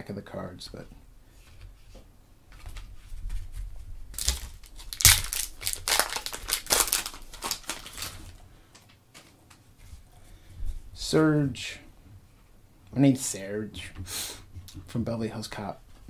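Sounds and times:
foil wrapper tearing and crinkling: 4.1s - 8.4s
sharp loud foil tear: 4.2s - 8.3s.

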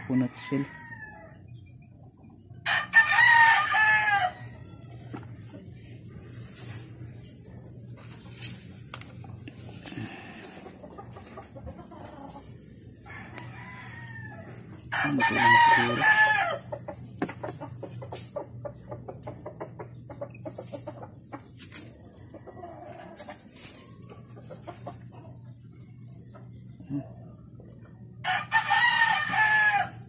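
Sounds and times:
rooster crowing: 0.0s - 1.4s, 2.6s - 5.0s, 13.0s - 16.7s, 28.2s - 30.0s.

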